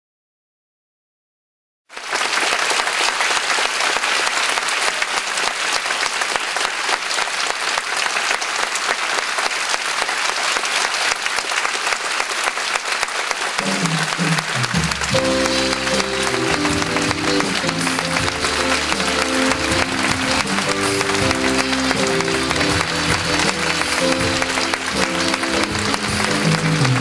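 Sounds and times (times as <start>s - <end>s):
audience applauding: 1.9s - 27.0s
music: 13.6s - 27.0s.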